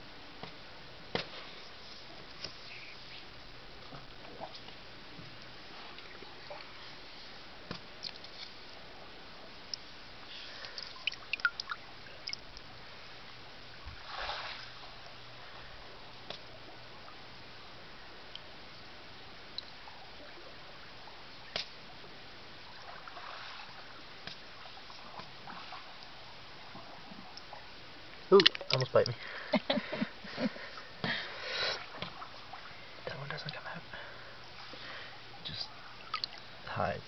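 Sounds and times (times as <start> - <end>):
water splashes and drips: 9.6 - 12.8, 13.7 - 17.2, 22.6 - 30.0, 31.4 - 36.8.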